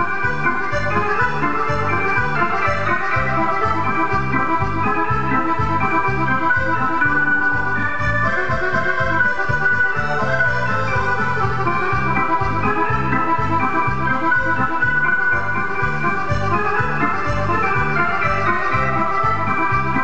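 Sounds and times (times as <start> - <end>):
accordion dance tune: 0.0 - 20.0
keyboard accompaniment: 0.0 - 20.0
pulsing bass beat: 0.0 - 20.0.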